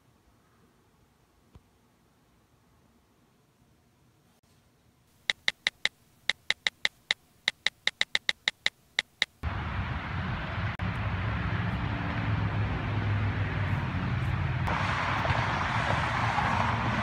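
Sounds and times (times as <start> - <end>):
steady low outdoor noise: 0.0 - 17.0
phone keyboard clicks: 5.3 - 9.4.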